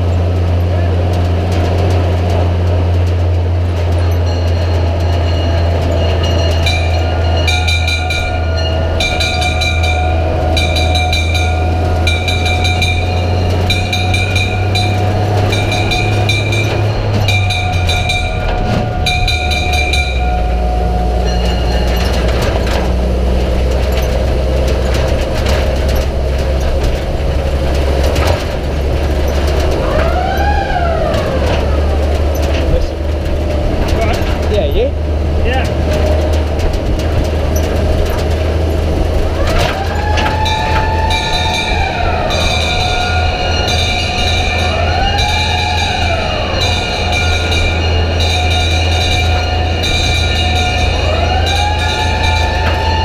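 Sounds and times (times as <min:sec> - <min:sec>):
fire engine running: 0:00.0 - 0:53.0
hand-rung brass bell: 0:03.7 - 0:26.7, 0:40.0 - 0:53.0.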